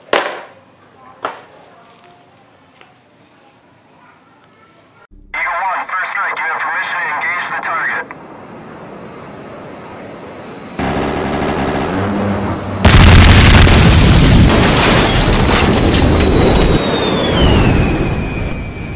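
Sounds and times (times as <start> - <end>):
high tone gliding downward: 7.6 - 13.3
explosion sound effect: 10.8 - 18.4.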